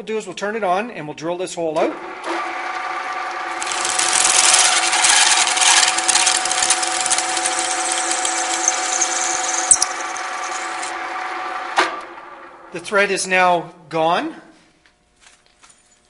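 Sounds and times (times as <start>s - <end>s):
drill press motor hum: 2.0s - 12.6s
drill bit cutting metal: 3.6s - 10.9s.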